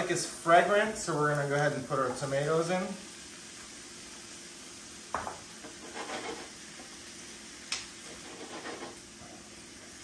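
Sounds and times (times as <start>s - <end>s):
faint sizzle: 0.0s - 10.0s
spatula scraping and stirring: 5.6s - 6.9s, 8.0s - 9.2s.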